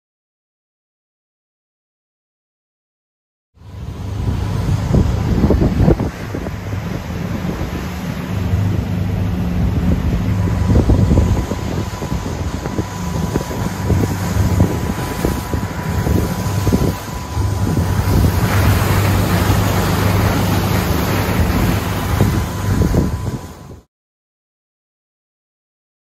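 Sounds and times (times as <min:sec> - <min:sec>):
boat engine drone: 0:03.6 - 0:23.9
water rushing past hull: 0:03.6 - 0:23.9
wind buffeting microphone: 0:03.6 - 0:23.9.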